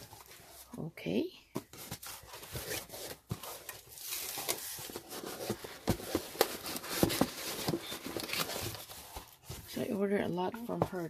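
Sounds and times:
cardboard and paper rustling: 0.0 - 0.8, 1.4 - 11.0.

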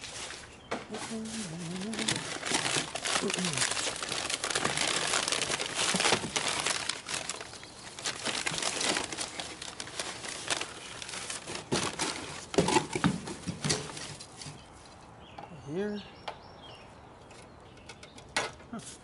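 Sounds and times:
paper and plastic bag crinkling: 0.0 - 14.6.

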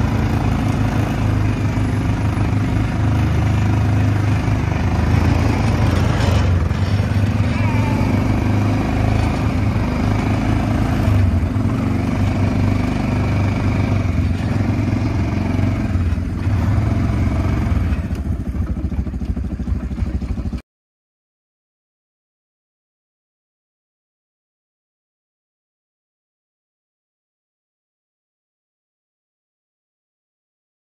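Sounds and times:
atv engine running: 0.0 - 20.6.

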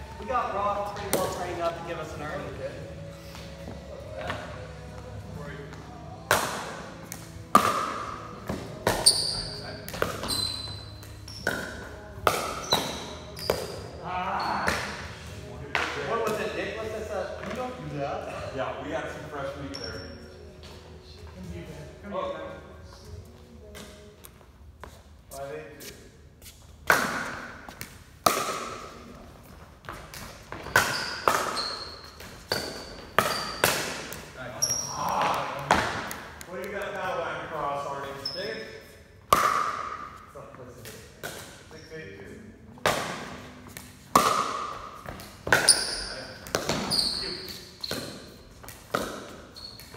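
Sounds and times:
paddles hitting plastic ball: 6.2 - 9.0, 26.8 - 29.0, 29.8 - 34.3, 39.3 - 40.0, 42.8 - 46.9, 47.5 - 49.9
ball bouncing on concrete: 6.3 - 13.9, 14.6 - 15.1, 26.8 - 28.8, 29.8 - 37.0, 39.3 - 40.1, 42.8 - 49.9
sneakers squeaking on concrete: 7.8 - 15.3, 19.4 - 21.6, 29.5 - 36.2, 37.8 - 39.0, 41.2 - 42.4, 44.6 - 49.9
short high squeaks: 9.0 - 11.5, 49.5 - 49.9.

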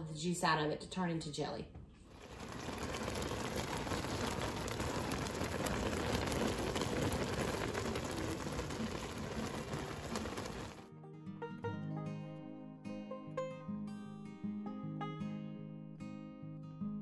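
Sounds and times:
water boiling and bubbling: 2.1 - 10.9.

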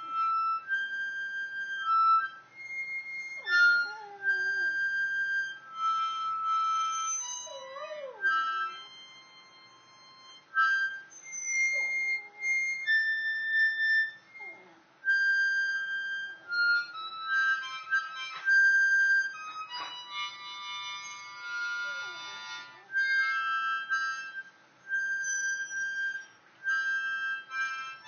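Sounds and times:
harmonica playing blues: 0.0 - 28.0
dog howling: 3.2 - 5.8, 6.6 - 9.0.

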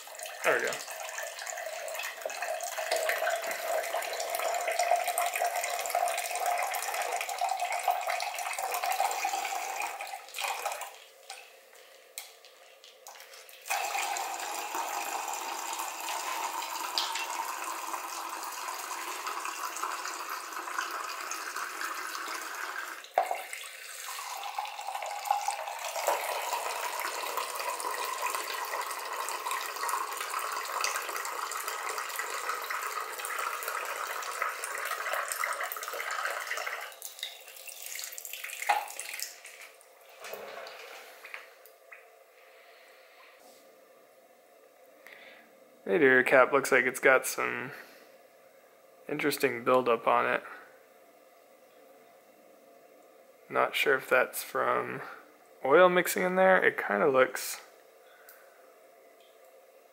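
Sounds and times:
coolant splashing into drain pan: 12.2 - 41.4.

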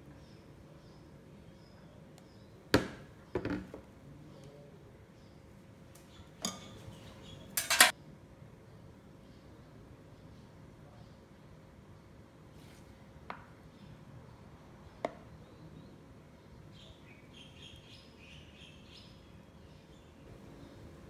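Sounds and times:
metal spoon clinking bowl: 6.4 - 6.8, 7.6 - 7.9.

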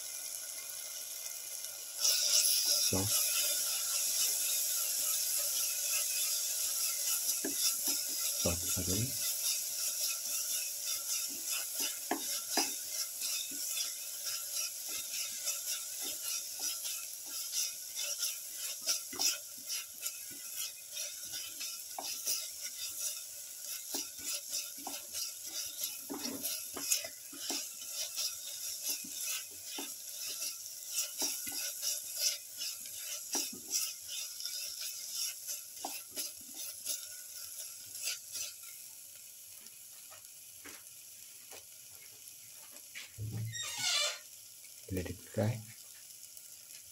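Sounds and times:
food sizzling in oil: 0.0 - 46.9
spatula scraping and knocking pan: 2.0 - 38.9.

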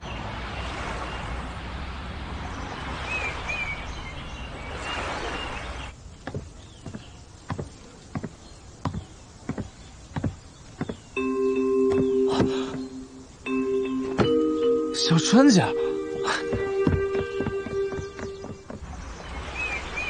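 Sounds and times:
outdoor ambience: 0.0 - 20.0
bird chirps: 3.1 - 20.0
footsteps walking: 6.2 - 11.2, 11.9 - 13.2, 13.9 - 14.5, 15.6 - 18.9.

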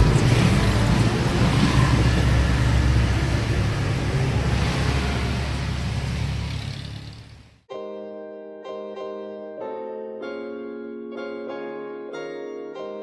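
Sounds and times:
vehicle engine rumble: 0.0 - 7.7
wind and road noise: 0.0 - 7.7.

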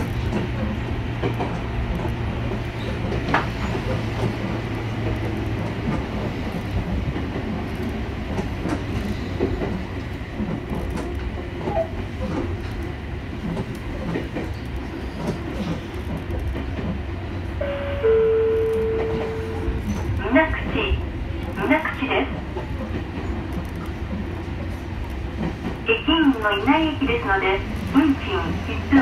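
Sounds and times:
wheels clicking on track: 0.0 - 17.5
electric train rumbling: 0.0 - 29.0.

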